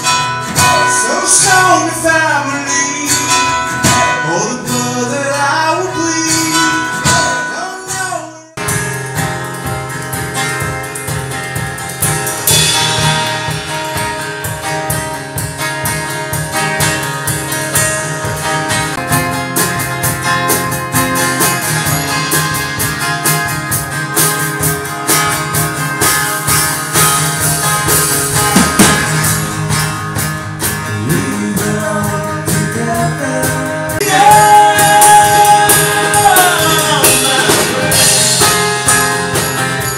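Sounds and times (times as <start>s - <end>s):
drum kit with cymbals: 0.0s - 2.0s, 8.6s - 39.9s
acoustic guitars strumming: 0.0s - 39.9s
person singing: 0.4s - 8.6s, 31.0s - 38.8s.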